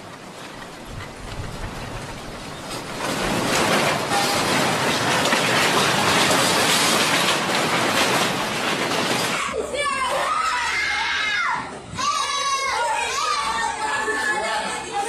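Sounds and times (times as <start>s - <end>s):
earthquake rumbling and rattling: 0.0s - 9.5s.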